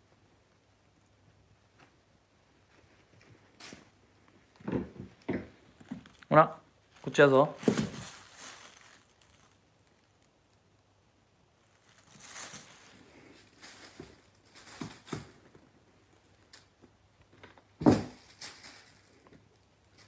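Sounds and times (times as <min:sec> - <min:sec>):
plastic bag rustling: 0:05.6 - 0:10.8, 0:11.4 - 0:16.7, 0:17.8 - 0:20.0.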